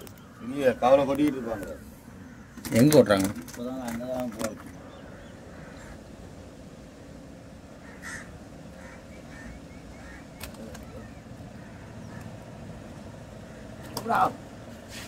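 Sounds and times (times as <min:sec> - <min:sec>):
faint bird calls: 0:00.0 - 0:03.0, 0:03.8 - 0:06.4, 0:07.7 - 0:14.4
low steady rumble: 0:04.6 - 0:14.9.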